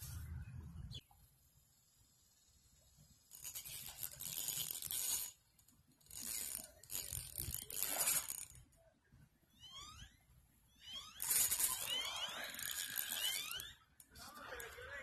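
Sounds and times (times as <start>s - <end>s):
fishing reel cranking: 3.3s - 5.4s, 6.0s - 8.6s, 10.9s - 14.8s.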